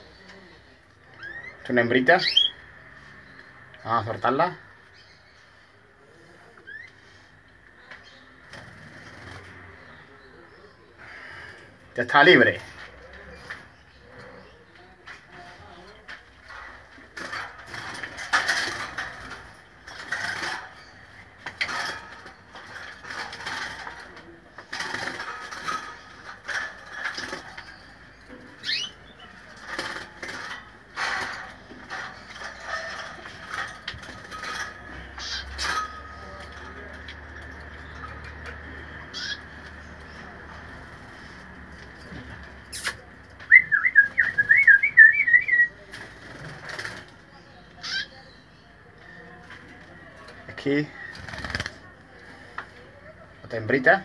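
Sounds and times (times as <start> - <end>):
canaries chattering: 0.0 - 54.0.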